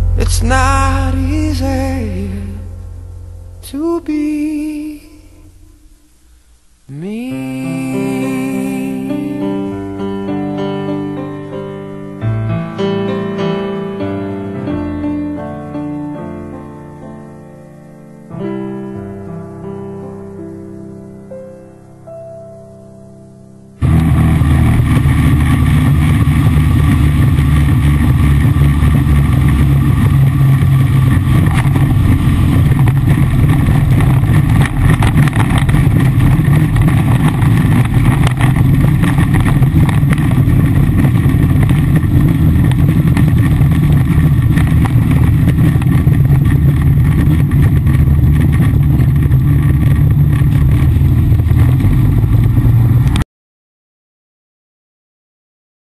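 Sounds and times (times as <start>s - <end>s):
rushing air: 0.0s - 6.9s, 23.8s - 53.2s
propeller plane engine roaring: 23.8s - 53.2s.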